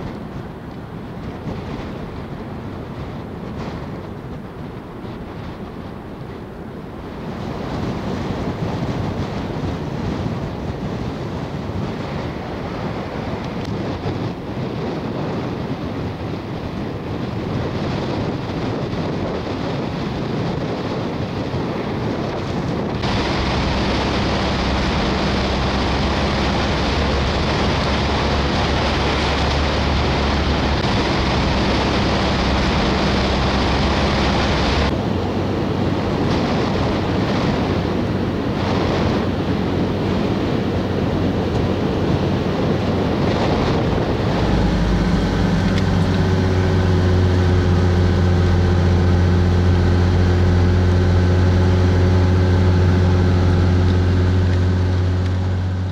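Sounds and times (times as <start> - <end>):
wind blowing on microphone: 0.0 - 55.9
surf breaking on beach: 17.6 - 55.9.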